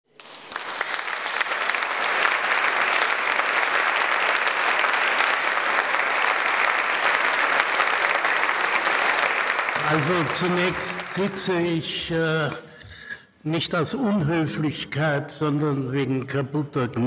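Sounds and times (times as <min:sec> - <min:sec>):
audience applauding: 0:00.1 - 0:11.8.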